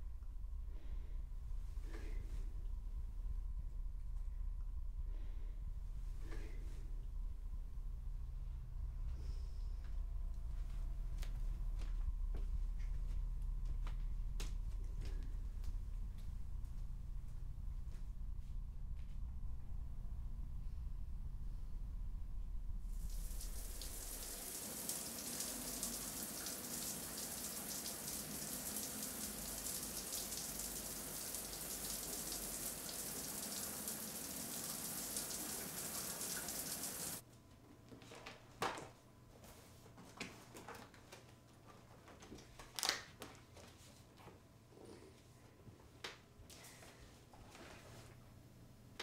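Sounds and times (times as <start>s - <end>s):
low hum: 0.0s - 36.0s
shower spray running: 23.0s - 37.2s.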